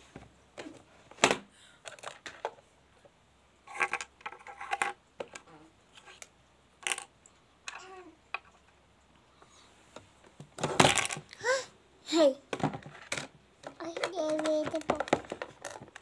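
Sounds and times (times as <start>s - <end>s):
plastic toy pieces clattering: 1.8s - 2.5s, 3.7s - 5.4s, 6.8s - 7.1s, 10.6s - 11.3s, 12.7s - 16.0s.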